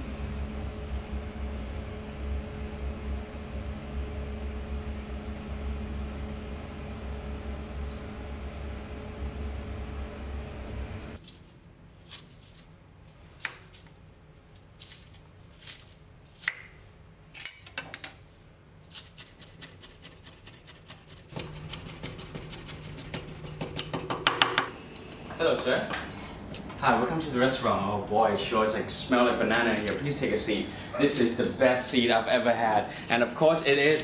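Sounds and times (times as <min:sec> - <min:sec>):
low hum: 0:00.0 - 0:11.2
knife chopping on wooden board: 0:21.4 - 0:24.7.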